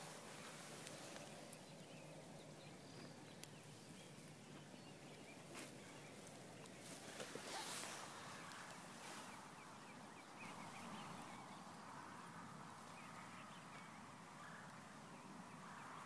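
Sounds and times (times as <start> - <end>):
faint outdoor ambience: 0.0 - 16.0
faint clicks: 3.3 - 3.6.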